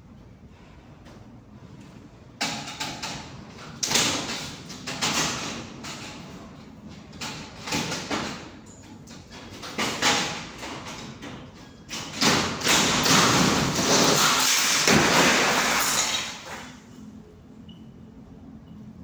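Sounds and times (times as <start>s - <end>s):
ceiling board crashing down: 12.2s - 16.8s.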